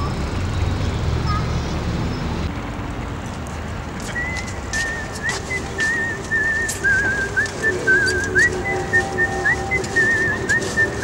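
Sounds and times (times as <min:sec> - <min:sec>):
whistled tune: 0:04.1 - 0:11.0.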